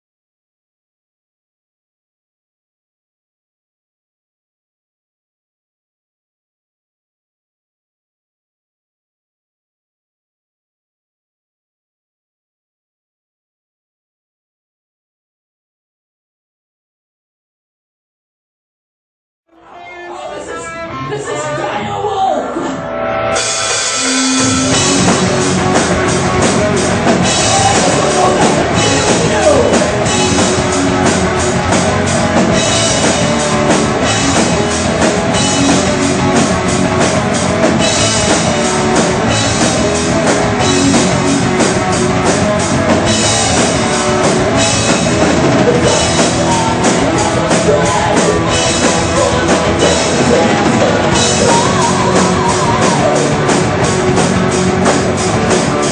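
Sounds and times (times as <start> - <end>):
distorted electric guitars: 19.6 - 55.9
heavy metal band playing live: 19.8 - 55.9
drum kit with cymbals: 23.4 - 55.9.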